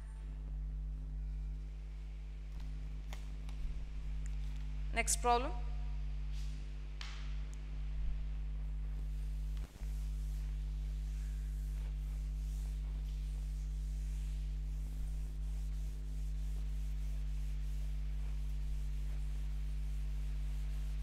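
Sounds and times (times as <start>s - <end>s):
steady low hum: 0.0s - 21.0s
duster rubbing on chalkboard: 9.0s - 21.0s.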